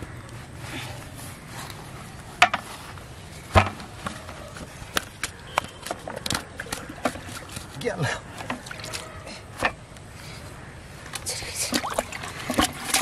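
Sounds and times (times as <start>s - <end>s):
fish slapping: 11.6s - 13.0s.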